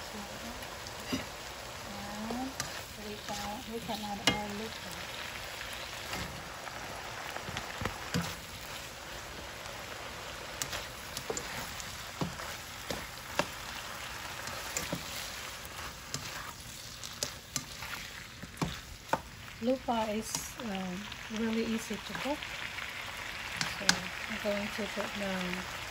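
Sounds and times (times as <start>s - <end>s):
food sizzling in a wok: 0.0s - 25.9s
spatula scraping pan: 1.0s - 1.4s, 2.2s - 6.4s, 10.6s - 19.2s.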